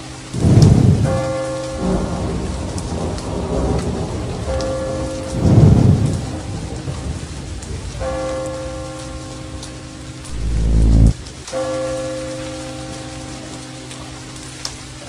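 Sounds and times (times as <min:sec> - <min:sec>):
steady rain: 0:00.0 - 0:15.0
low rumble of thunder: 0:00.3 - 0:08.4, 0:10.3 - 0:11.2
held synthesizer chords: 0:10.3 - 0:11.2.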